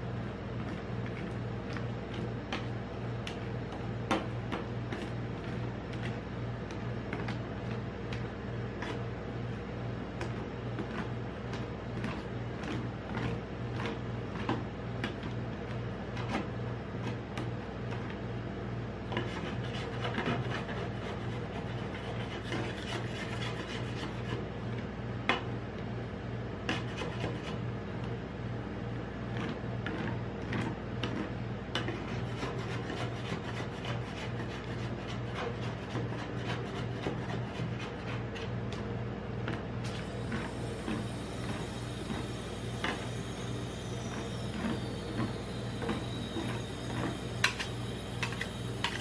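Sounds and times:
steady low hum: 0.0 - 49.0
metal spatulas scraping cold plate: 47.4 - 49.0.

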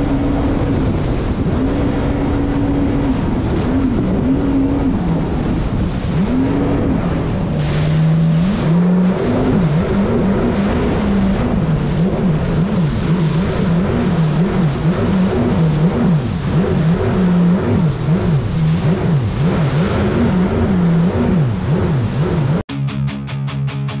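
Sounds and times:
jet ski engine running: 0.0 - 22.6
water spray rushing: 0.0 - 22.6.

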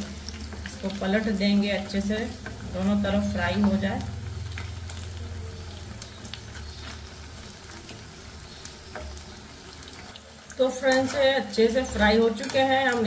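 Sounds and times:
oil sizzling and crackling: 0.0 - 13.0
low hum: 2.3 - 6.6
wooden spatula stirring: 5.7 - 13.0.

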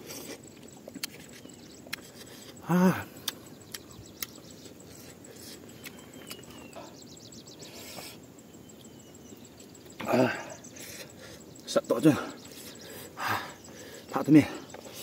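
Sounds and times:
faint bird chirps: 0.0 - 15.0
low steady background: 0.0 - 15.0
rapid insect trill: 0.0 - 15.0
chewing clicks: 0.1 - 6.8.

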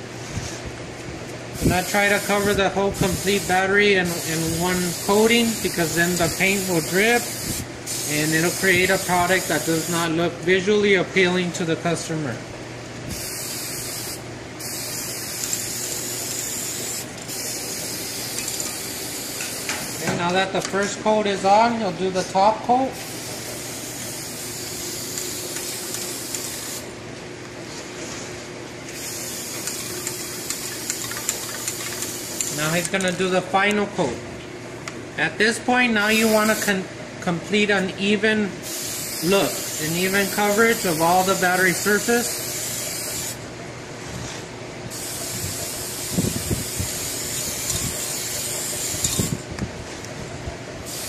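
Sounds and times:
spray paint can hissing: 1.6 - 10.0, 13.1 - 20.0, 23.0 - 26.9, 28.9 - 32.7, 38.6 - 43.4, 44.9 - 49.4.

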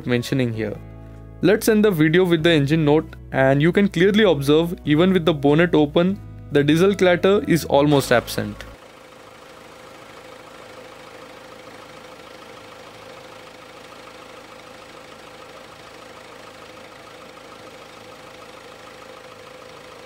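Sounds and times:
diesel engine idling: 6.8 - 20.0.

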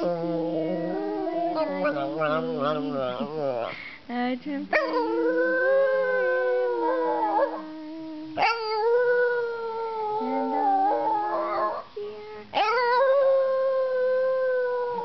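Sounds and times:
dog howling: 0.0 - 3.7, 4.8 - 11.9.

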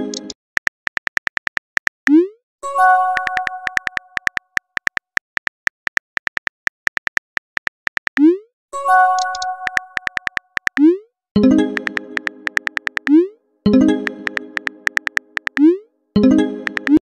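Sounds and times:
keyboard typing clicks: 0.0 - 2.3, 3.1 - 8.4, 9.0 - 17.0.

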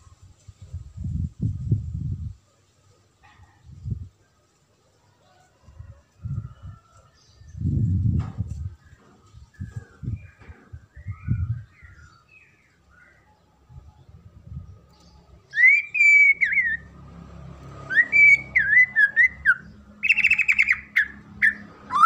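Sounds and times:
songbird whistling: 15.5 - 16.9, 17.9 - 22.0.

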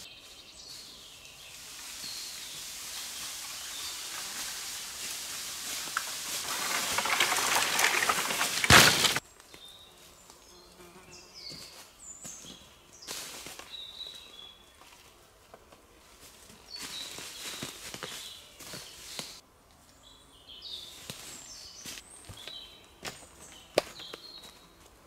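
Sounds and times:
small birds chirping: 0.0 - 6.0, 9.3 - 14.9, 16.6 - 24.8
rustling and crunching: 1.5 - 9.2, 16.1 - 19.4.

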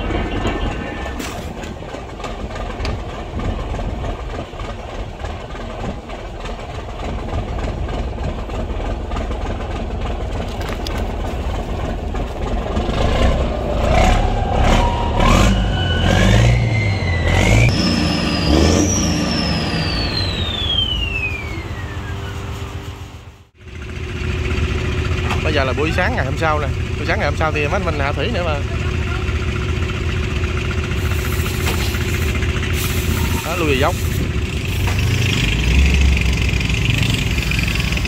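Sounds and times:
diesel engine running: 0.0 - 38.0
turbo whine: 13.3 - 24.9.

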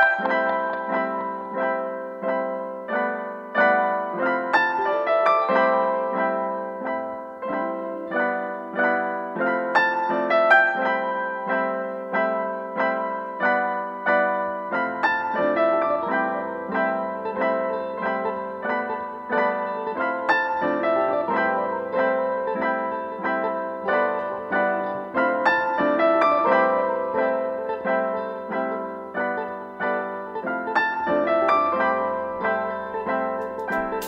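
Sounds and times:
gentle piano melody: 0.0 - 34.0.

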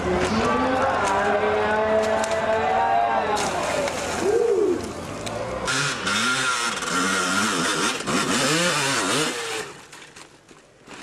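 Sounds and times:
dirt bike engine revving: 5.6 - 9.8.

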